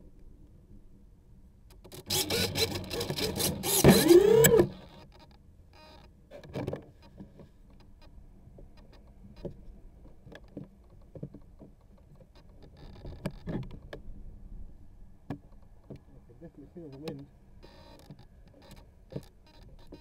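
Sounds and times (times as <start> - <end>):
low wind rumble on microphone: 12.7 - 16.5.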